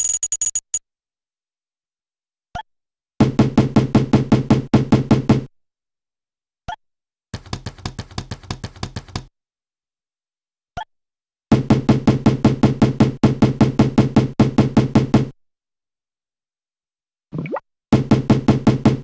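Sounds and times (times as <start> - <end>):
rapid clicking sound effect: 7.4 - 9.3.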